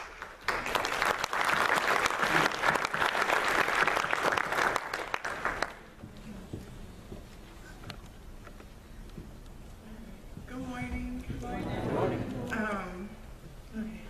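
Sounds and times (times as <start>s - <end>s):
congregation applauding: 0.0s - 5.9s.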